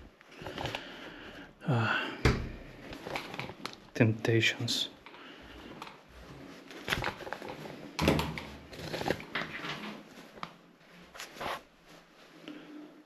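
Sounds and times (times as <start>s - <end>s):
rustling: 2.6s - 13.0s.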